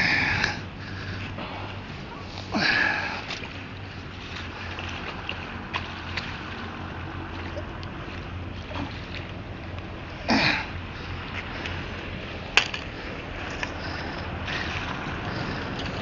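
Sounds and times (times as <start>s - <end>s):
fish thrashing in water: 0.0s - 16.0s
wind and water noise: 0.0s - 16.0s
loud splash: 1.4s - 9.4s.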